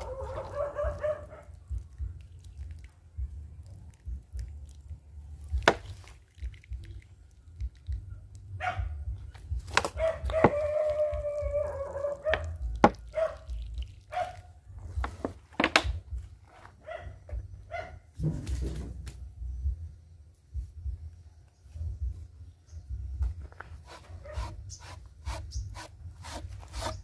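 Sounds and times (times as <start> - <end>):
low rumble: 0.0 - 14.0, 17.3 - 23.4.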